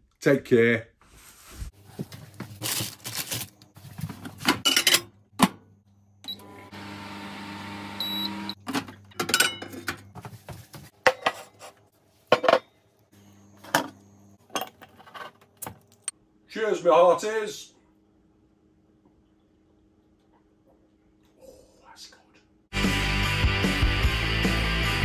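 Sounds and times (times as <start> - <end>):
microwave humming: 2.2 - 10.4, 12.6 - 16.1
microwave beep: 6.2 - 8.6.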